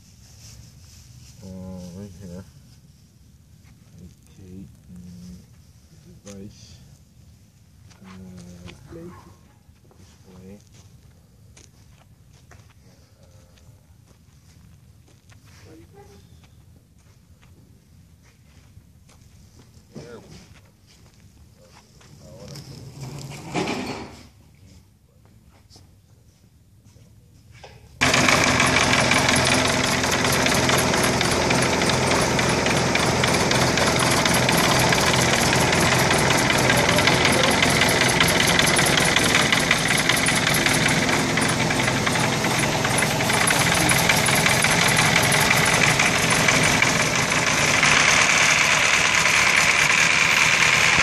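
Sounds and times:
aircraft engine running: 0:28.0 - 0:51.0
propeller turning: 0:28.0 - 0:51.0.

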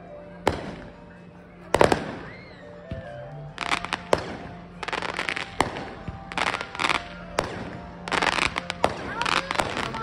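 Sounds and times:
fireworks crackling: 0:03.5 - 0:10.0.

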